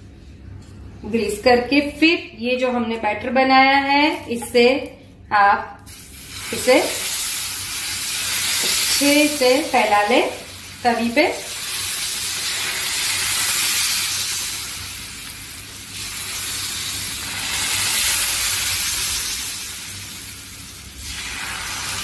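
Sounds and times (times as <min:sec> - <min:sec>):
batter sizzling on griddle: 0:05.9 - 0:22.0.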